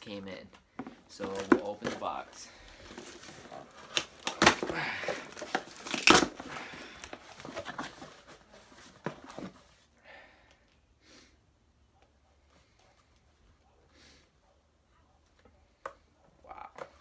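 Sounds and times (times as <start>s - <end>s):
cardboard box being torn open: 3.1s - 7.9s.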